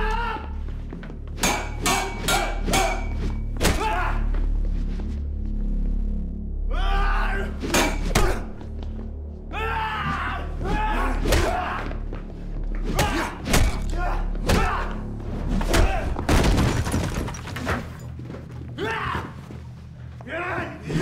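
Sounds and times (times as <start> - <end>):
low droning film score: 0.0 - 21.0
pained shouts: 9.5 - 12.0, 12.9 - 15.0.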